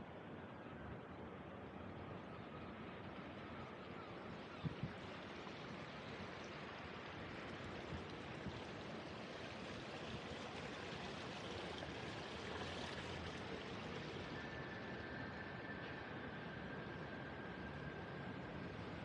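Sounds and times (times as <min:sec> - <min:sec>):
water splashing in a channel: 0:04.3 - 0:19.0.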